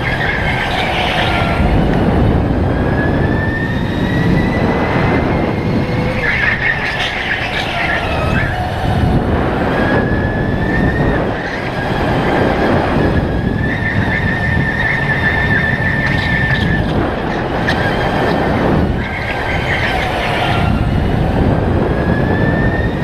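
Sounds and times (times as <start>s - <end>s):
go-kart rumble: 0.0s - 23.0s
high steady whine: 0.0s - 23.0s.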